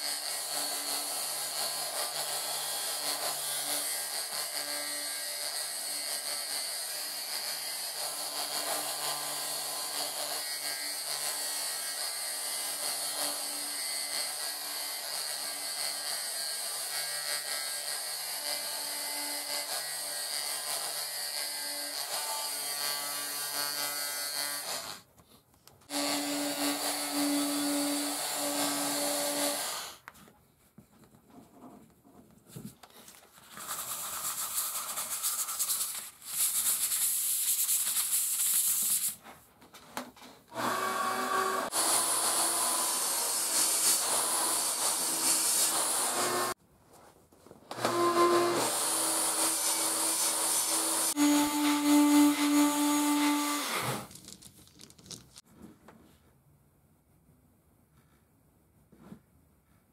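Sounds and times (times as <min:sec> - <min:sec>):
rotary carving tool whining: 0:00.0 - 0:25.0, 0:25.9 - 0:30.1, 0:40.5 - 0:46.6, 0:47.7 - 0:54.3.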